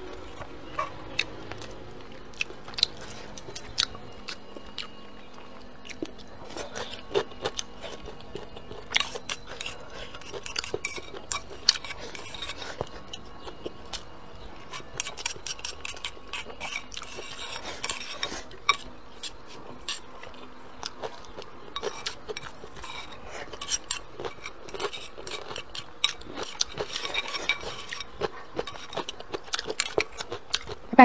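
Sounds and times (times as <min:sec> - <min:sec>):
chopsticks scraping a bowl: 0:08.7 - 0:13.5, 0:14.6 - 0:20.1, 0:21.0 - 0:30.7.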